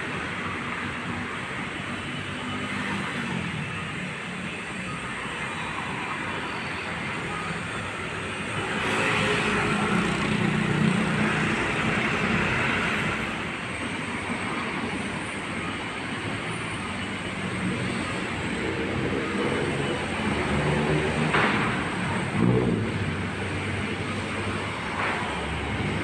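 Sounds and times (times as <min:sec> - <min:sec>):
vehicles driving past: 0:00.0 - 0:26.0.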